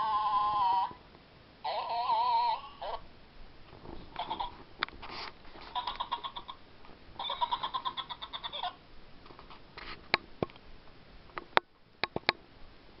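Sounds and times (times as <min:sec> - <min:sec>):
electronic voice warble from toy speaker: 0:00.0 - 0:01.0, 0:01.6 - 0:03.0.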